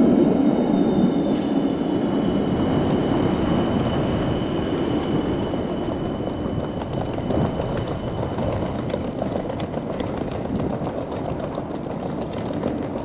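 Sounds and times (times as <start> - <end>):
suitcase wheels rattling on paving: 5.3 - 13.0.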